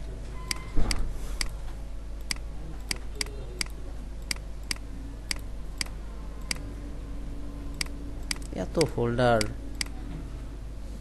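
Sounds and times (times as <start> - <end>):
low steady background hum: 0.0 - 11.0
computer mouse clicking: 2.2 - 6.7, 7.7 - 10.0.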